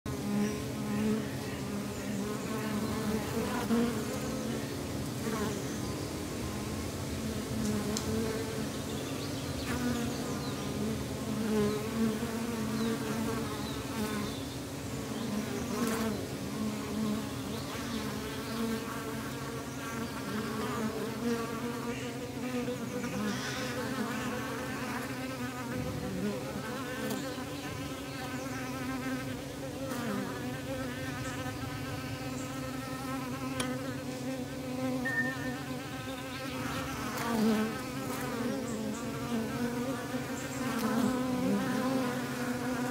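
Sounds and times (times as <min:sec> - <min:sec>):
bees buzzing: 0:00.1 - 0:42.9.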